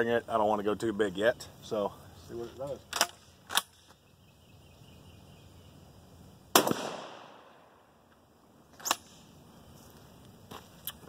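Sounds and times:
shotgun blast with echo: 6.5 - 7.6.

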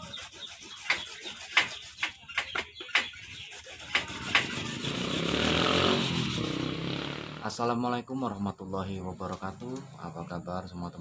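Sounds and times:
cassava scraping on grater: 0.0 - 2.2, 3.1 - 6.7.

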